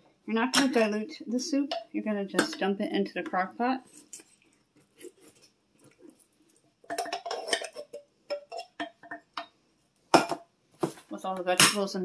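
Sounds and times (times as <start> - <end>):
wooden spoon scraping metal can: 6.9 - 8.8.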